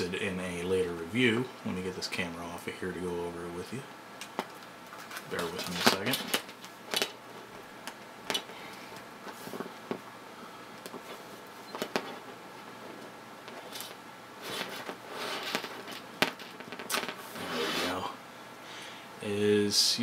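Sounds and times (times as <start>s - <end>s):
rustling: 4.9s - 7.6s, 8.2s - 10.1s, 10.8s - 18.1s.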